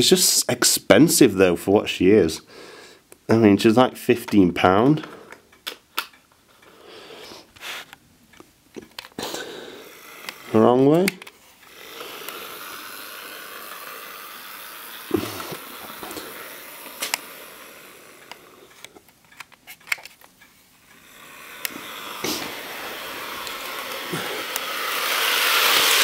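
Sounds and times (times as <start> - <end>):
model train motor whirring: 8.9 - 26.0.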